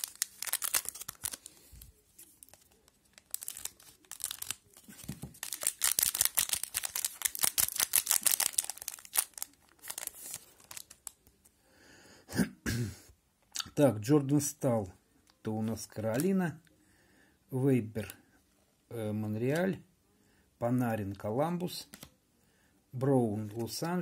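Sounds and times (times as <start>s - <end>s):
wrapper tearing and crinkling: 0.0s - 11.2s.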